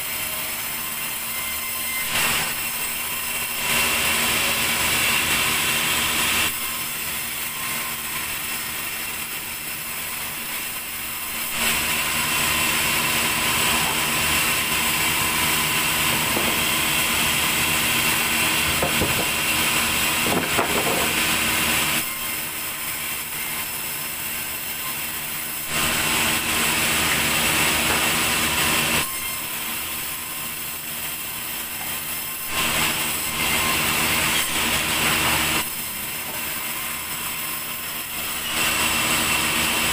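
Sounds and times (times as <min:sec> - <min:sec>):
band saw whining through log: 0:00.0 - 0:39.9
wooden knocks: 0:18.8 - 0:19.4.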